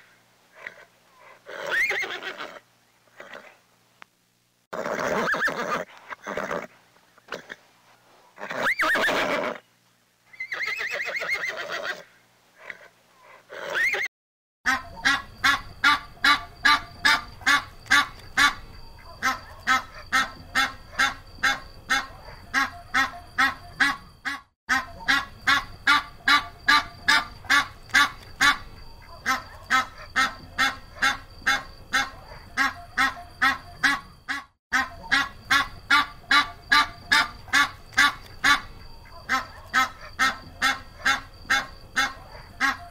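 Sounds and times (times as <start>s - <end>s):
horse whinnying: 0.6s - 2.6s, 3.2s - 3.6s, 4.7s - 6.7s, 8.4s - 9.6s, 10.3s - 14.1s
goose honking: 14.7s - 42.9s.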